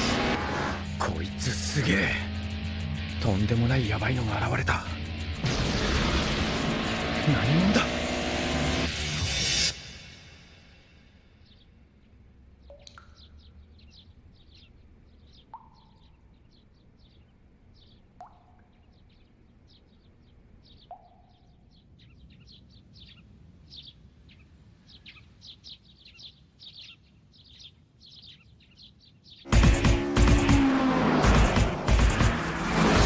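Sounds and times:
small birds chirping: 0.0 - 9.6, 10.9 - 30.8
water drops plinking into tank: 12.6 - 13.6, 15.5 - 16.1, 18.2 - 18.8, 20.8 - 21.4.

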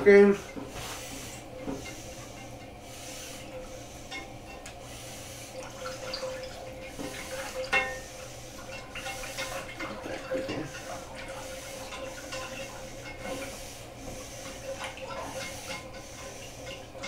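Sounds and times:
faint steady hum: 0.0 - 17.0
whisk stirring sauce in saucepan: 5.9 - 17.0
whisk clinking against pot: 6.9 - 13.6, 14.4 - 17.0.

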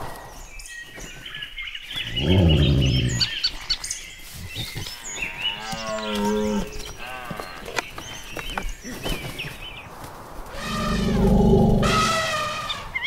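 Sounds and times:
birds chirping: 0.0 - 13.0
long low animal call: 2.1 - 3.3, 10.5 - 13.0.

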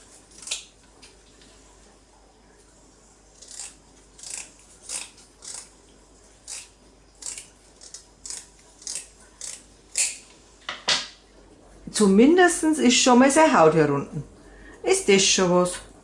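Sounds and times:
scissors snipping fish bones: 3.4 - 5.7, 6.5 - 10.2.

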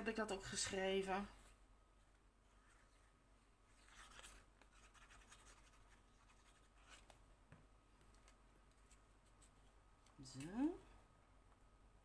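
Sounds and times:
paper rustling: 3.7 - 7.2.

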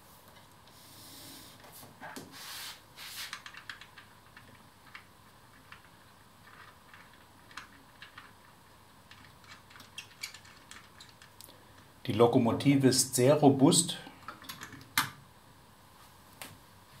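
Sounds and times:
hands rubbing and rustling: 0.0 - 3.8.

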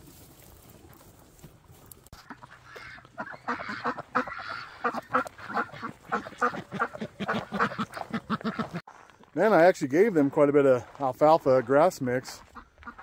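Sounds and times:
ducks quacking: 2.1 - 8.8, 11.5 - 13.0.

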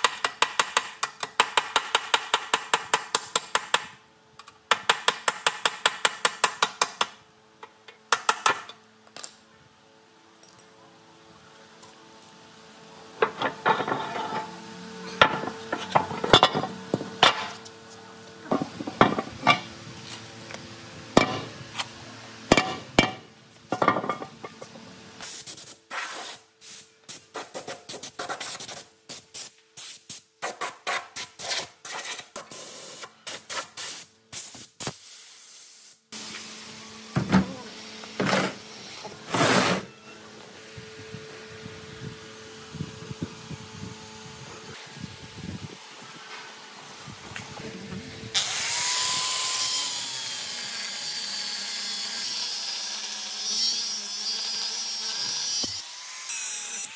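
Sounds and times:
short hissing scraping bursts: 25.2 - 36.1.

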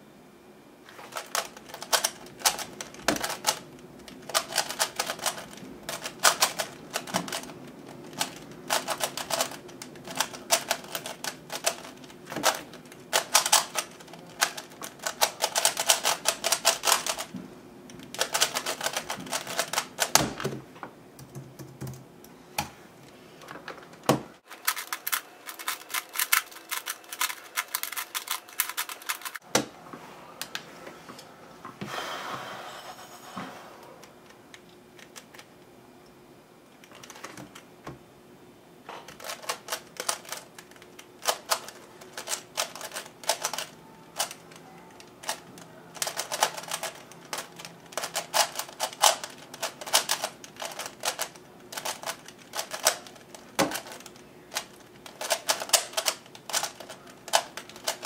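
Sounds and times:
speedcube turning clicks: 1.2 - 17.3, 17.9 - 20.1, 24.6 - 29.4, 39.2 - 44.5, 46.0 - 58.0.

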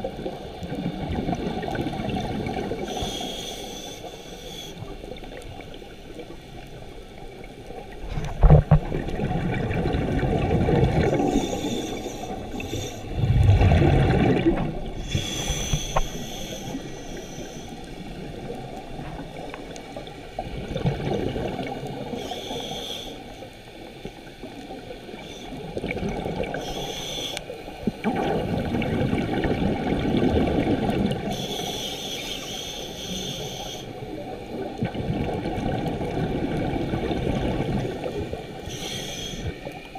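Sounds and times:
regulator hissing inhalations: 2.8 - 4.9, 11.1 - 13.2, 15.0 - 18.1, 22.1 - 23.4, 26.5 - 27.6, 31.3 - 34.0, 38.6 - 39.7
bubbling exhalations: 13.0 - 16.0.

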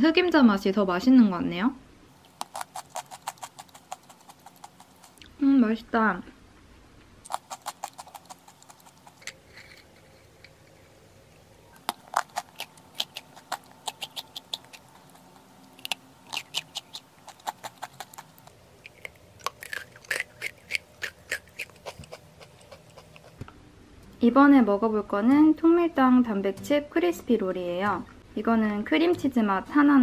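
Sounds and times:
person chewing crunchy snack: 2.2 - 5.3, 7.2 - 23.4.

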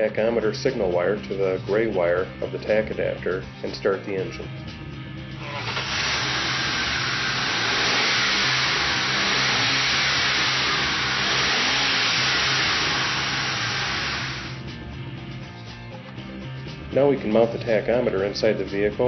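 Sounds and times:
car engine revving: 5.2 - 15.0.

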